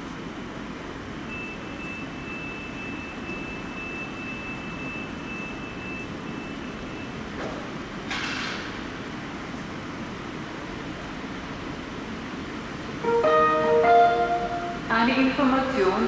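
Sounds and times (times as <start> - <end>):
train rumbling: 7.4 - 16.0
high-pitched tone: 13.0 - 14.9.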